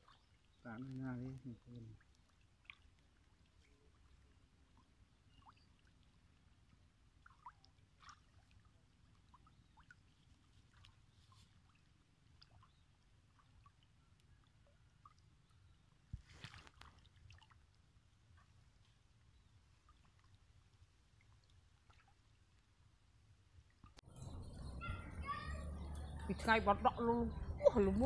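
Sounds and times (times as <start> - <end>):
faint low rumble: 24.0 - 28.0.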